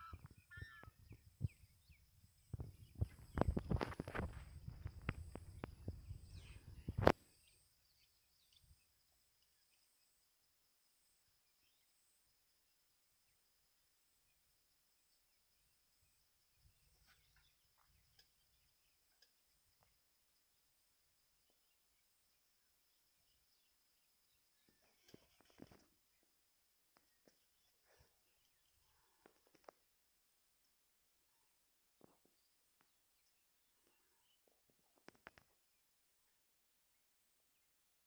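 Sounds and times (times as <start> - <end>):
wind rumble on microphone: 0.1 - 7.2
microphone handling noise: 2.6 - 7.2.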